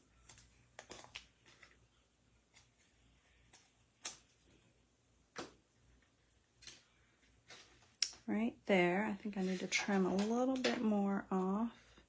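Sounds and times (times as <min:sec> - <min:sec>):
ribbon and paper rustling: 0:00.0 - 0:04.6, 0:09.2 - 0:11.6.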